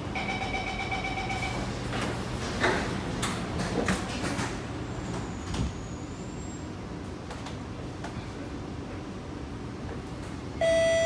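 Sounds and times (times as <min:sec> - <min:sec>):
train car low hum: 0:00.0 - 0:11.0.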